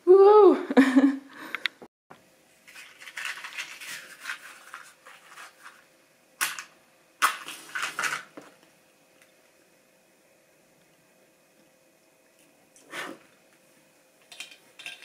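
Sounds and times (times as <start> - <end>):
rustling and scraping handling noises: 2.6 - 5.9, 7.2 - 8.6.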